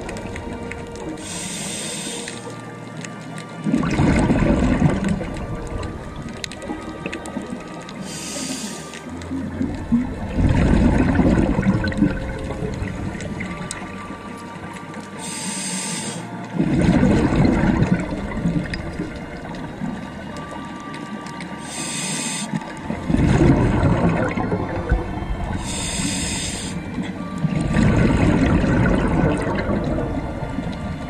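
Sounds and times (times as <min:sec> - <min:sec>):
exhaled bubbles rushing: 0:00.0 - 0:01.4, 0:03.6 - 0:14.6, 0:16.4 - 0:20.6, 0:22.5 - 0:31.0
regulator hissing inhales: 0:01.2 - 0:02.6, 0:08.0 - 0:09.0, 0:15.2 - 0:16.3, 0:21.6 - 0:22.6, 0:25.6 - 0:26.9.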